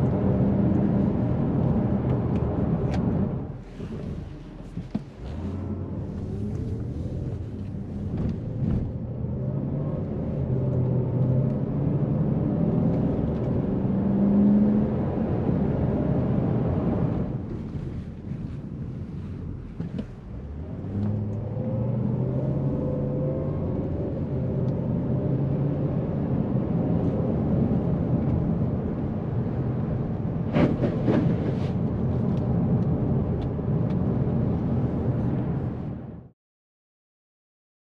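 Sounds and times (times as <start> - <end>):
road noise: 0.0 - 36.3
car engine accelerating: 19.8 - 31.2.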